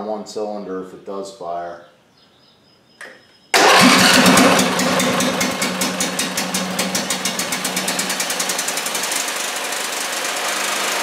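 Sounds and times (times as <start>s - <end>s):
engine starting and running: 3.6s - 11.0s.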